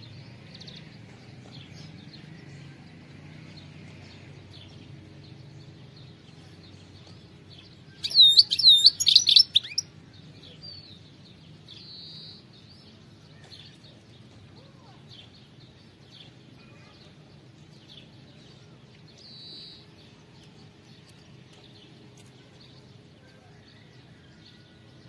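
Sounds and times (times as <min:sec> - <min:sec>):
bird twittering: 0:07.9 - 0:09.9.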